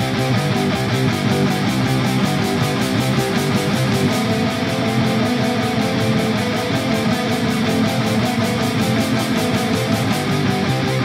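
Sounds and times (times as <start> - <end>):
bass guitar: 0.0 - 11.0
distorted electric guitars: 0.0 - 11.0
fast drums: 0.0 - 11.0.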